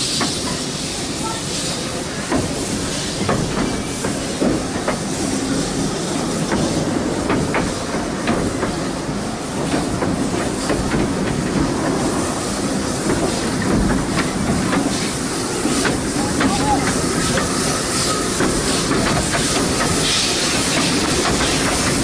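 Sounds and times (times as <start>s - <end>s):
steam hiss: 0.0s - 22.0s
train rumbling: 0.0s - 22.0s
wheels clicking over rail joints: 2.2s - 22.0s.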